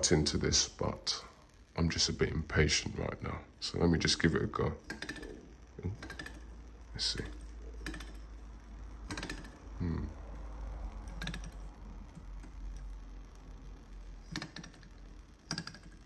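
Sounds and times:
metallic clicks and rattles: 4.0s - 9.8s, 10.6s - 16.0s.

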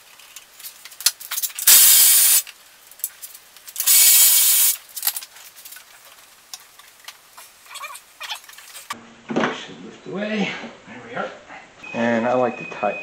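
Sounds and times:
hissing pressurised spray: 1.7s - 2.4s, 3.9s - 4.8s.

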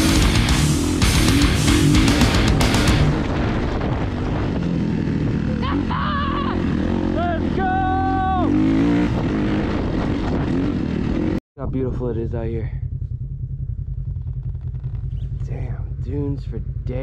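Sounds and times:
off-road vehicle engine running: 0.0s - 17.0s
person calling out: 5.6s - 8.6s.

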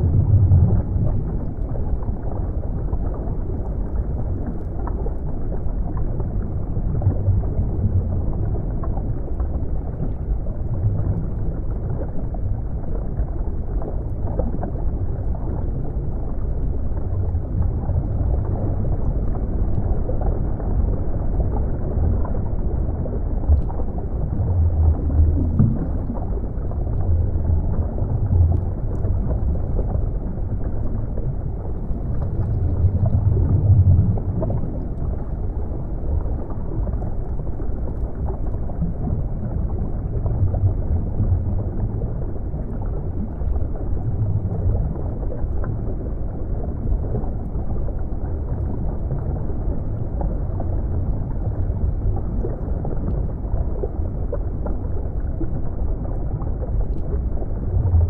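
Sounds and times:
muffled underwater rumble: 0.0s - 58.0s
faint ticks: 56.6s - 57.3s.

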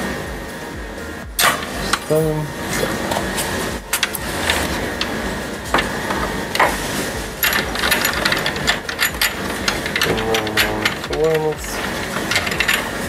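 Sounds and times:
steady background hum: 0.0s - 13.0s.

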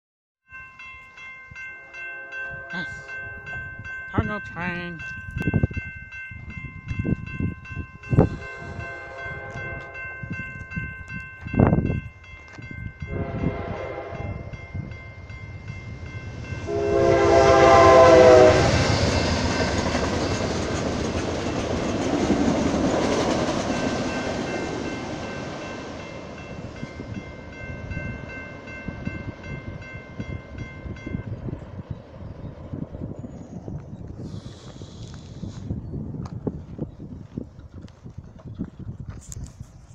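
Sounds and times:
crossing signal bell ringing: 0.5s - 32.0s
passing train rumble: 0.5s - 39.6s
train horn blasts: 1.8s - 3.6s, 8.2s - 10.3s, 13.0s - 14.6s, 16.6s - 19.4s.

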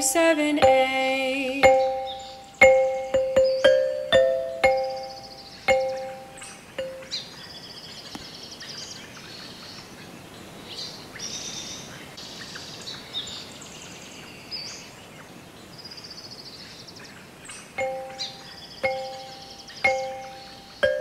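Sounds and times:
birds singing and trilling: 0.0s - 21.0s
outdoor ambient hiss: 0.0s - 21.0s
soft chime note: 0.6s - 7.2s, 17.8s - 21.0s.

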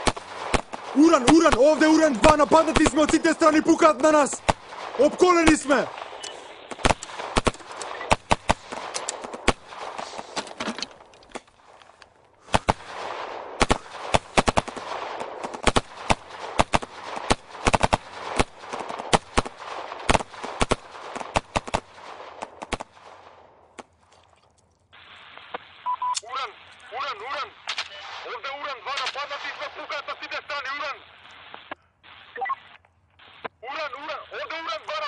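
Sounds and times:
heavy gunfire bursts: 0.0s - 10.4s, 12.4s - 23.3s.

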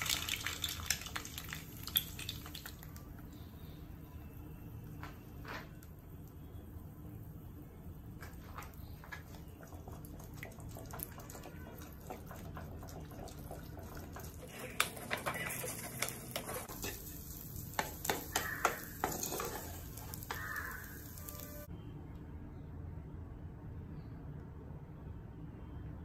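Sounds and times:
eggs frying in a pan: 0.0s - 3.8s, 5.9s - 21.7s
spatula scraping a metal pan: 14.4s - 17.2s, 17.8s - 21.5s.

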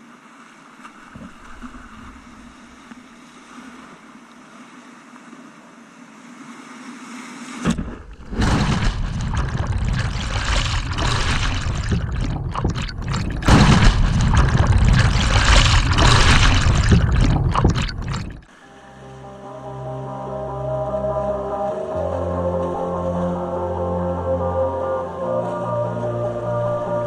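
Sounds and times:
underwater rush of water: 0.7s - 5.2s, 6.2s - 18.6s
whitewater rushing: 7.7s - 18.5s.

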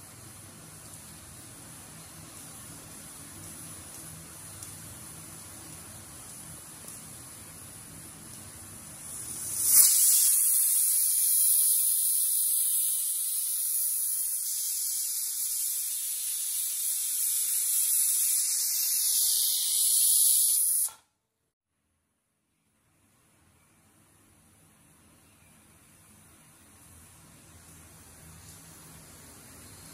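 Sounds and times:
pressure cooker whistling steam hiss: 0.0s - 21.1s.

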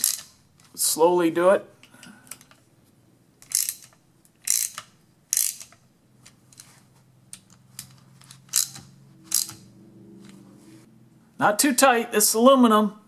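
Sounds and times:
ratchet wrench clicking: 0.0s - 0.4s, 3.4s - 5.8s, 7.4s - 9.7s.

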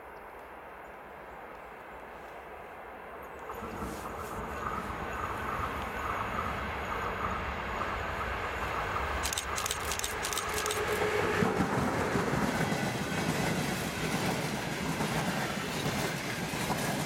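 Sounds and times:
locomotive hum: 3.2s - 16.9s
train wheels rumbling on rail: 3.3s - 17.0s
sharp clicks: 9.2s - 11.0s.

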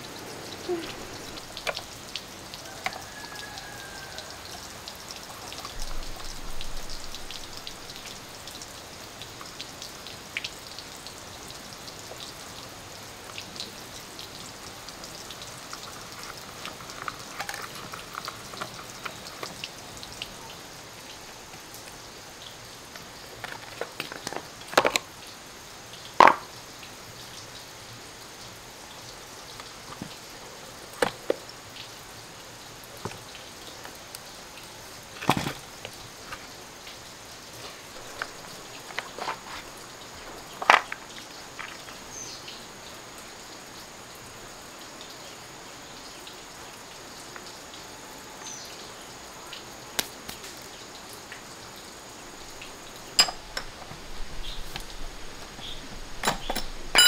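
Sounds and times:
steady hiss: 0.0s - 57.0s
tools and metal parts clicking: 53.2s - 53.8s, 56.2s - 57.0s.

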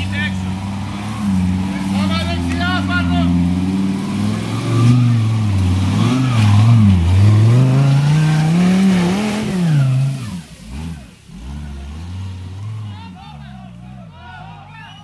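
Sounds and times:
off-road vehicle engine revving: 0.0s - 15.0s.

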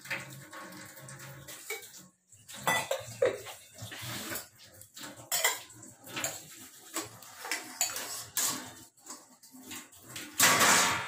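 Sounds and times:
steel dishes clinking: 2.6s - 4.4s, 5.2s - 8.8s.

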